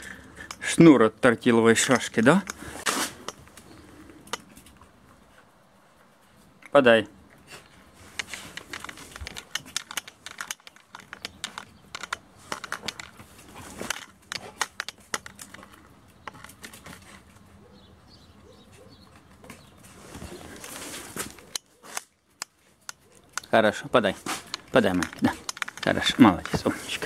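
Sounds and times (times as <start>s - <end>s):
dog claws clicking on concrete: 3.2s - 5.0s, 8.1s - 17.4s, 20.6s - 27.0s.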